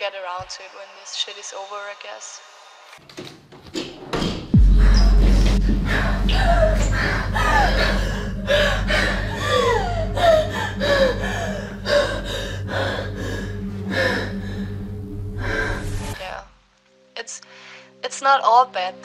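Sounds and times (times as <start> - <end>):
steady low hum: 4.5 - 16.3
woman sobbing and gasping: 4.6 - 16.1.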